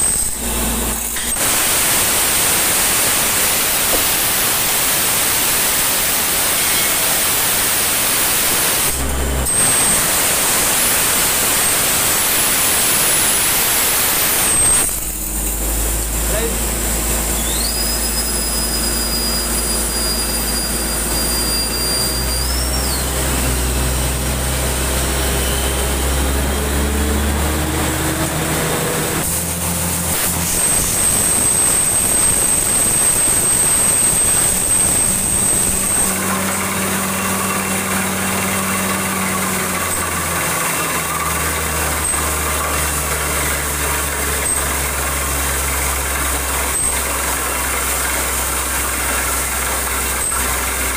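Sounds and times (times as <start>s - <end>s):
drilling rig motor drone: 0.0s - 50.9s
thin high whistle: 17.3s - 23.2s, 30.2s - 37.8s.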